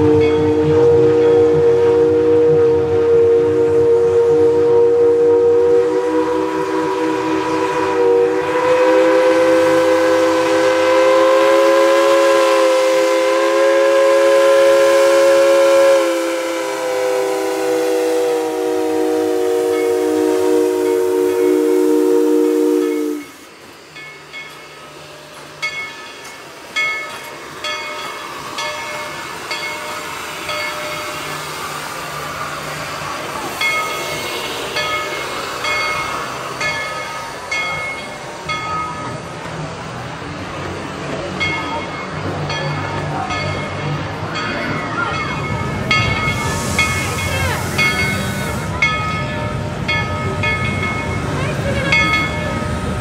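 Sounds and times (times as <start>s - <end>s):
locomotive bell ringing: 0.0s - 1.5s, 19.6s - 21.8s, 22.6s - 31.8s, 33.1s - 39.7s, 41.0s - 53.0s
steam whistle chord: 0.0s - 23.6s
steam hiss: 0.0s - 53.0s
train running noise: 0.0s - 53.0s.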